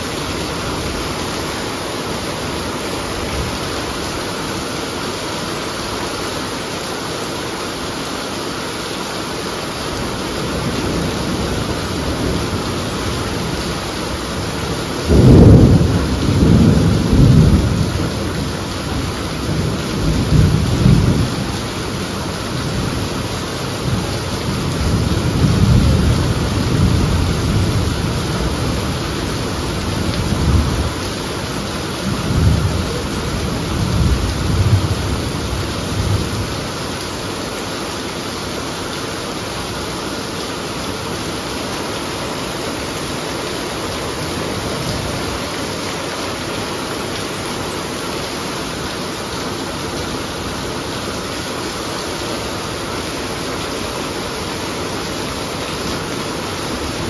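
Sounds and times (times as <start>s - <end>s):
heavy rain: 0.0s - 57.0s
thunder crack and rumbles: 15.1s - 18.1s.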